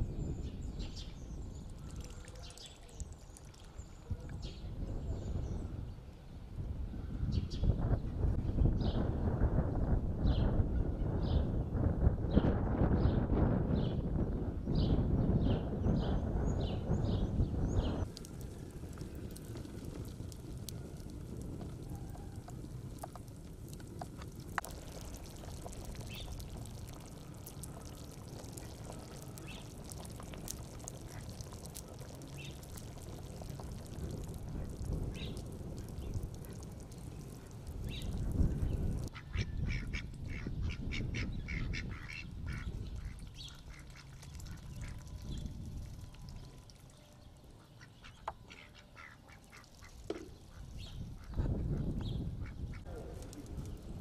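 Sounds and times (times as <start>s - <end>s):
wood fire crackling and popping: 18.0s - 39.1s
ducks quacking: 39.1s - 45.0s, 47.6s - 51.5s.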